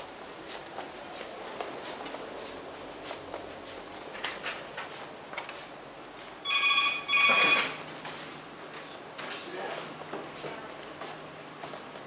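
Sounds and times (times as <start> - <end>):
footsteps on hard floor: 0.4 - 12.0
short electronic ringing tones: 6.4 - 7.8.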